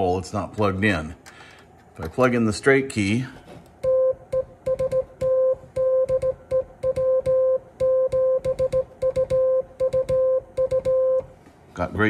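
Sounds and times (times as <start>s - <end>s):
morse code beeps: 3.8s - 11.3s.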